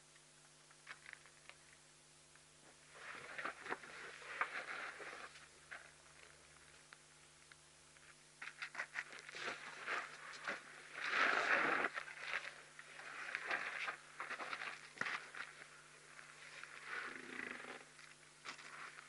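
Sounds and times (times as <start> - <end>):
elephants scraping and rustling: 9.4 - 14.7.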